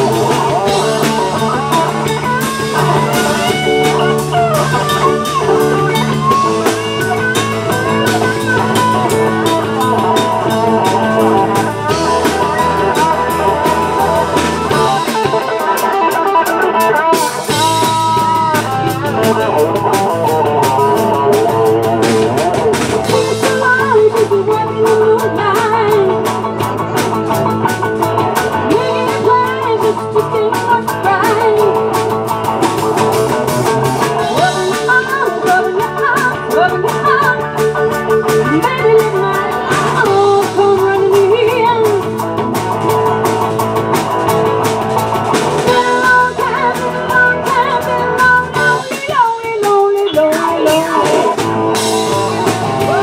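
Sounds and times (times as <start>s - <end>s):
woman singing lead: 0.0s - 43.2s, 45.4s - 53.0s
drum kit: 0.0s - 53.0s
electric guitars: 0.0s - 53.0s
keyboard: 0.0s - 53.0s.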